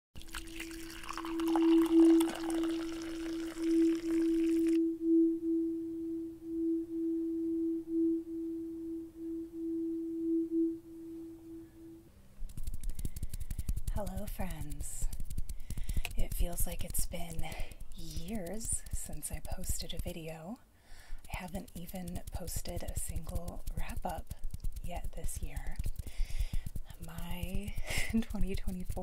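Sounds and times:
water pouring into cup: 0.2s - 4.8s
clear ringing tone: 0.6s - 12.1s.

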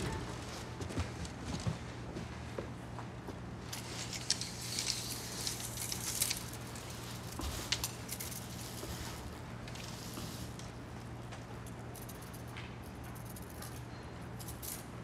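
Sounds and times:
steady low hum: 0.0s - 15.0s
folding ruler clicking and rattling: 3.7s - 8.6s.

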